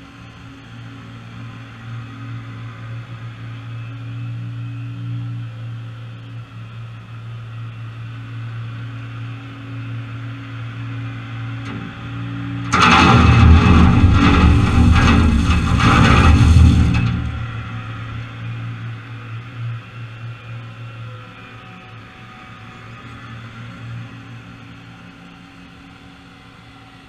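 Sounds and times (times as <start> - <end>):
tractor engine running: 11.6 - 19.2
gravel pouring into trailer: 12.7 - 18.2.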